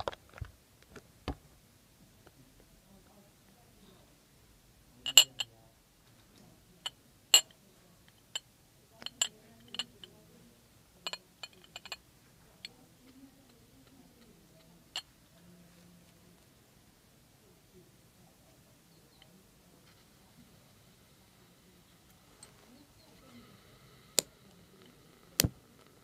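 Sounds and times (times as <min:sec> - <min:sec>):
metal clinking on glass: 0:05.1 - 0:05.5, 0:09.0 - 0:10.0, 0:11.1 - 0:12.0.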